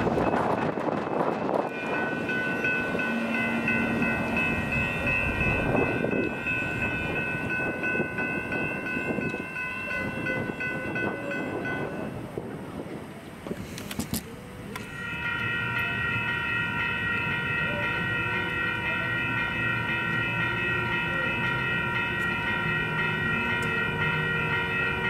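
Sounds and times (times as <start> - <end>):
passenger train rumbling past: 0.0 - 25.0
bell ringing rapidly: 1.4 - 12.1.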